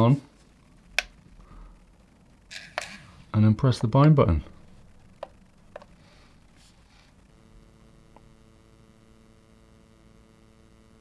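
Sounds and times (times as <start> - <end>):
faint electronic hum: 0.0 - 11.0
radio transmitter button click: 8.0 - 8.3.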